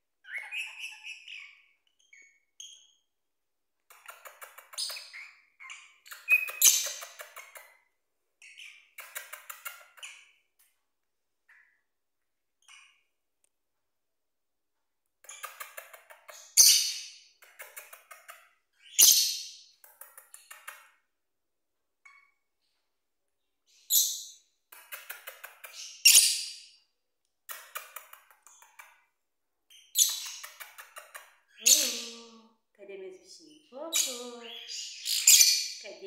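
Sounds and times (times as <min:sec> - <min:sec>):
parrots chirping shrilly: 0:00.2 - 0:02.4, 0:25.8 - 0:26.6, 0:34.0 - 0:35.8.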